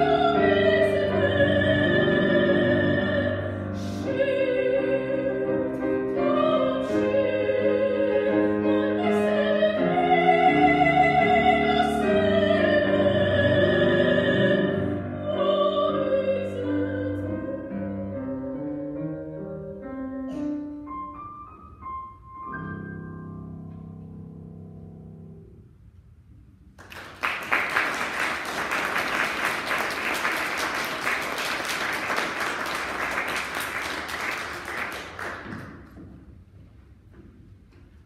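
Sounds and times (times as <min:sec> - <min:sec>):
grand piano playing: 0:00.0 - 0:26.0
audience applause: 0:26.8 - 0:36.0.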